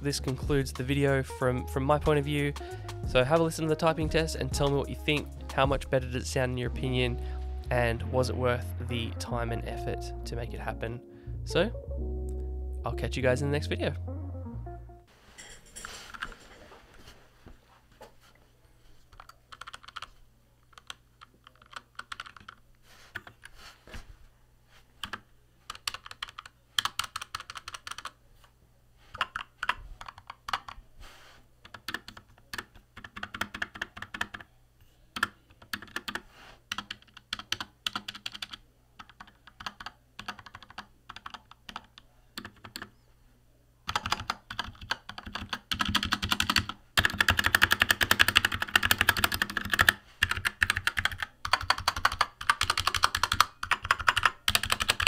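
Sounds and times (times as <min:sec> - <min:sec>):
mechanical keyboard typing: 0:19.2 - 0:20.1, 0:20.7 - 0:22.6, 0:25.0 - 0:28.2, 0:29.1 - 0:30.8, 0:31.6 - 0:34.5, 0:35.2 - 0:42.9, 0:43.9 - 0:55.0.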